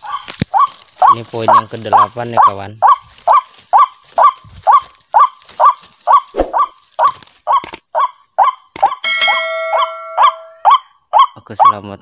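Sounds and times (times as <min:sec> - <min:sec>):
electronic chime of held tones: 0:09.1 - 0:10.6.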